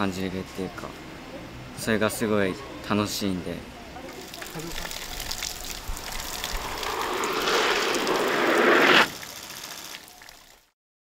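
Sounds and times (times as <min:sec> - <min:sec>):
skis hissing down a ramp: 0:06.0 - 0:10.1.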